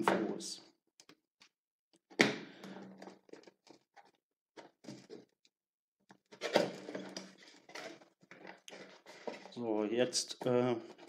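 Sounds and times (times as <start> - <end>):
cardboard scraping and tapping: 6.3 - 9.5.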